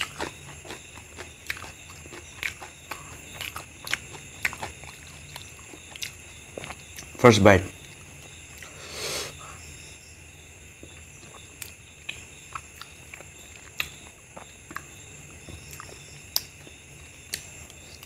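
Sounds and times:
wet chewing and lip smacks: 0.0s - 7.2s, 10.8s - 18.0s
faint steady hum: 0.0s - 18.0s.

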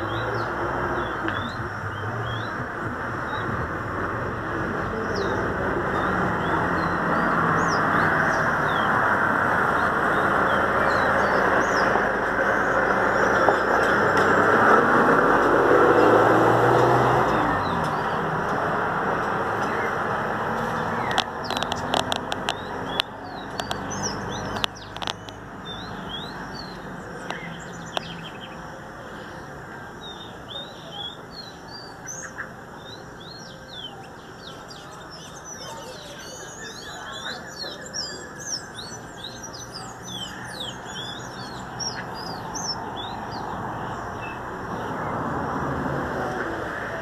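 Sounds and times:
sharp clicks: 20.6s - 25.4s
songbird chirping and whistling: 30.0s - 44.4s.

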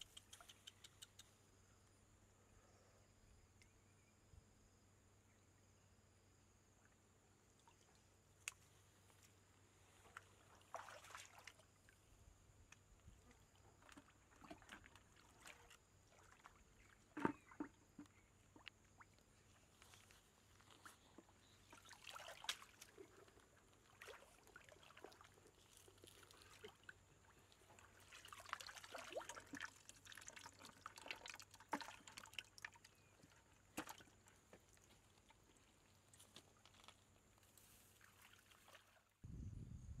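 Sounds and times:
stream water splashing: 10.0s - 12.0s, 13.6s - 19.2s, 20.8s - 35.4s, 37.9s - 39.1s.

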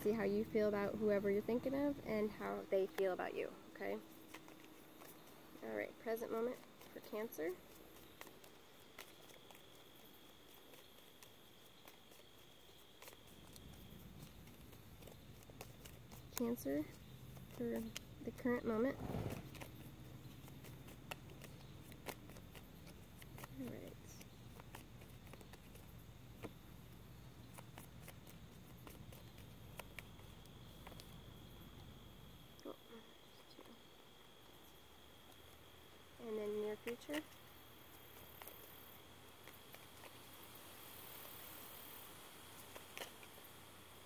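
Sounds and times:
cards being shuffled: 4.0s - 31.5s, 38.1s - 41.6s, 42.4s - 44.0s.

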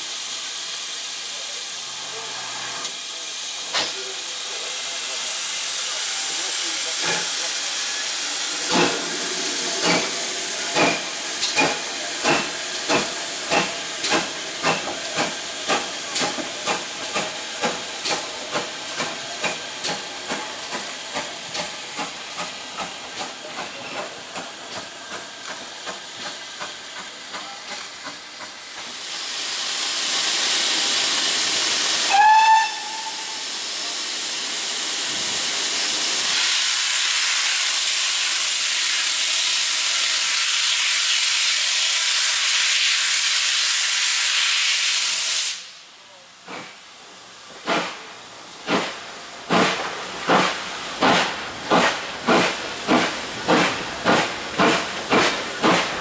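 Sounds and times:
steam hissing: 0.0s - 56.0s
steam locomotive exhaust beats: 2.8s - 56.0s
steam whistle blast: 32.0s - 33.5s.

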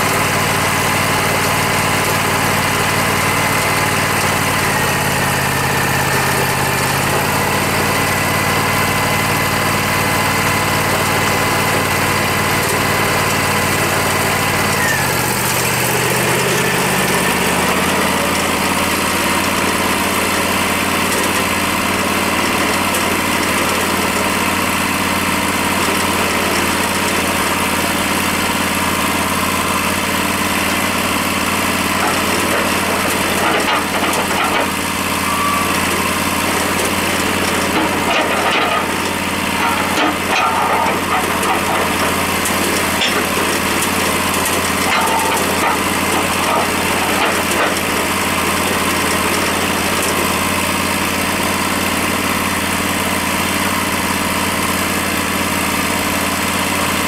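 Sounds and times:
sawmill engine running: 0.0s - 57.0s.

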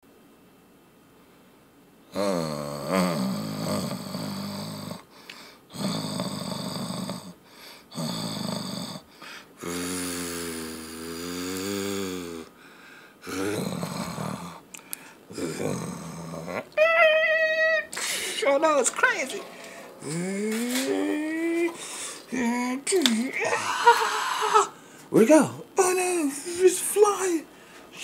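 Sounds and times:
person imitating car engine: 2.1s - 5.0s, 15.3s - 18.0s, 20.0s - 24.8s.

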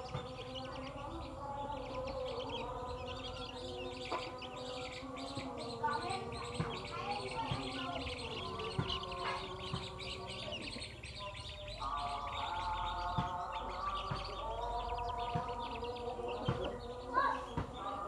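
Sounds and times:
chicks peeping: 0.0s - 18.0s.

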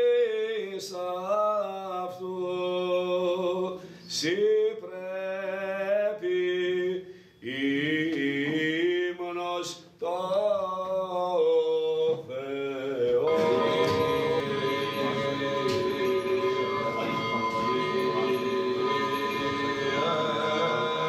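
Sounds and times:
man chanting solo line: 12.7s - 21.0s
low held drone voices: 13.2s - 21.0s.

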